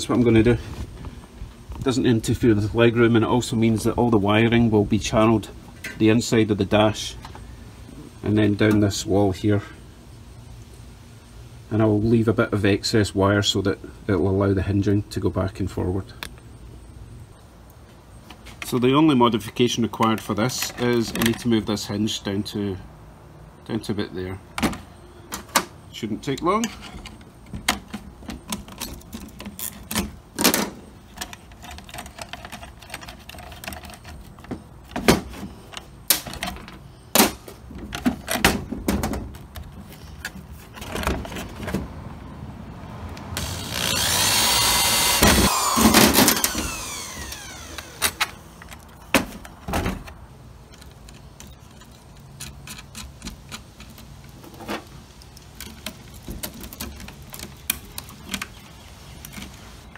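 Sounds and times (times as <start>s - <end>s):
metal panel and tools clattering: 26.6s - 41.9s
electric drill drilling: 43.4s - 48.3s.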